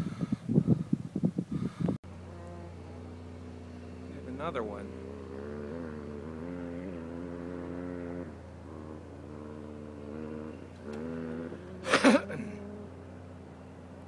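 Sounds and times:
off-road vehicle engine running: 1.6 - 14.0.

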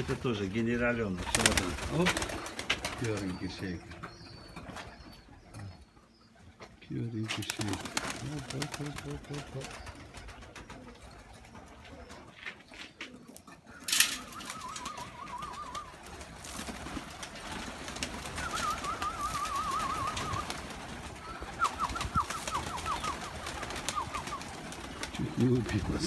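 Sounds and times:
pigeon wings flapping: 1.1 - 3.4, 7.3 - 13.1, 13.8 - 26.0
warbling whistled trill: 13.9 - 16.2, 18.2 - 24.5.

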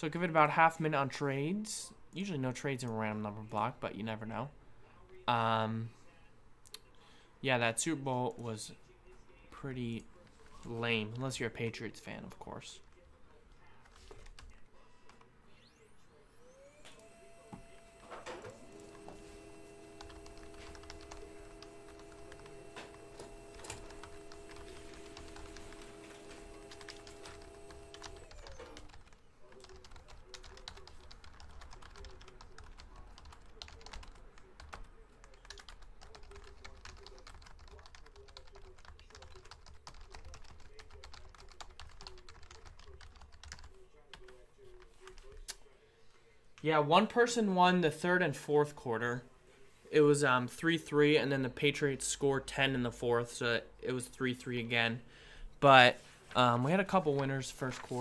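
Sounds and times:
faint multi-tone hum: 0.0 - 58.0
typing on computer keyboard: 19.6 - 44.3.

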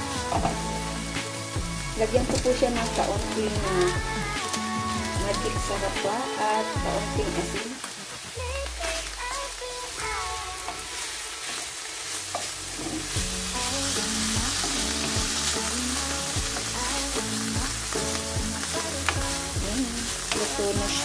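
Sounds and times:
food sizzling in a wok: 0.0 - 21.0
light background music: 0.0 - 21.0
spatula scraping wok: 9.0 - 21.0.

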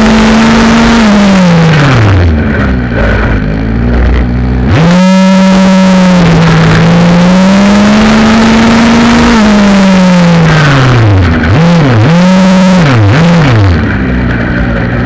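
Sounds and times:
two-stroke engine revving: 0.0 - 15.0.

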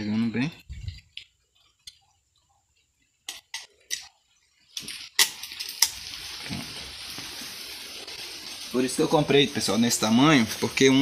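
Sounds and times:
steady hiss: 3.6 - 11.0.

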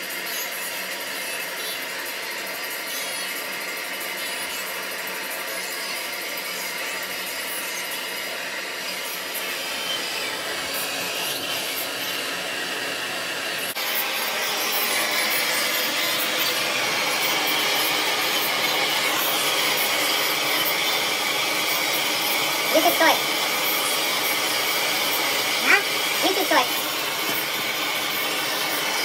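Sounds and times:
torch flame hissing: 6.9 - 29.0.

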